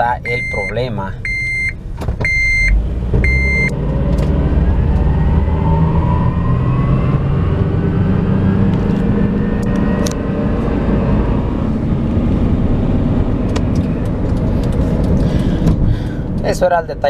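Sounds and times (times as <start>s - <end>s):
seatbelt warning chime beep: 0.2s - 3.7s
car engine accelerating: 2.2s - 16.6s
rising whine: 2.6s - 16.4s.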